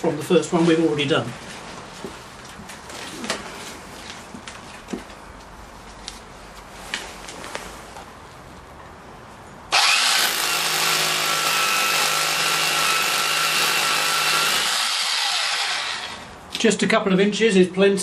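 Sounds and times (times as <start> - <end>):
drill boring into concrete: 9.7 - 16.3.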